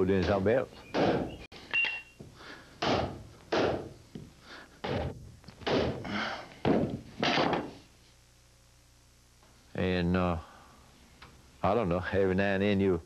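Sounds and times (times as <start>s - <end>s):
hammer driving nails into wood: 0.9s - 1.3s, 2.8s - 3.9s, 4.8s - 6.0s, 6.7s - 7.8s.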